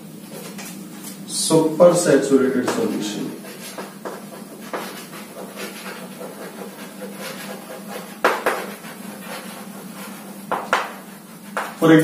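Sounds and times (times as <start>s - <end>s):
steady low hum: 0.0s - 12.0s
chalk tapping on board: 2.6s - 11.8s
chalk scratching on blackboard: 2.7s - 12.0s.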